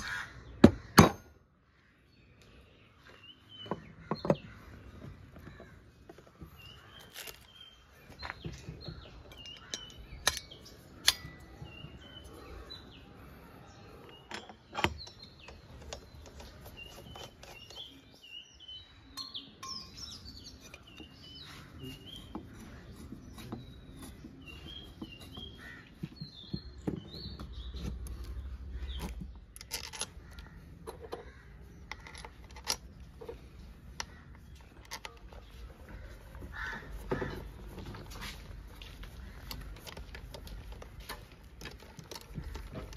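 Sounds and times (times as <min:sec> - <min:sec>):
small birds chirping: 0:00.0 - 0:42.9
metal parts and tools clicking: 0:09.2 - 0:11.7, 0:27.8 - 0:35.6, 0:39.0 - 0:42.9.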